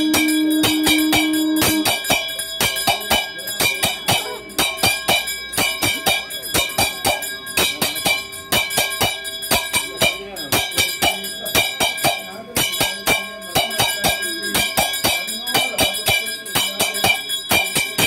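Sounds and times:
held low tone: 0.0 - 2.0
brass hand bell ringing: 0.0 - 18.0.

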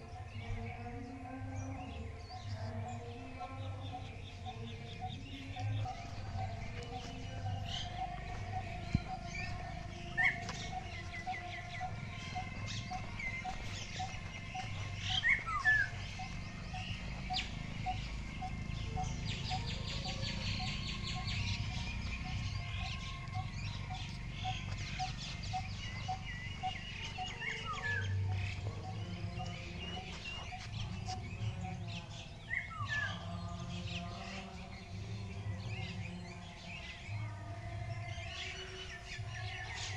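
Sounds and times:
birds chirping and whistling: 0.0 - 39.9
bird repeating low note: 3.8 - 32.8.

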